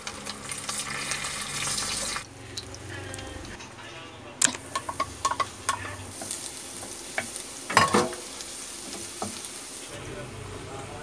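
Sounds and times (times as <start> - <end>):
garlic sizzling in oil: 0.0 - 3.6, 4.5 - 10.7
spatula stirring and scraping pan: 4.7 - 10.0.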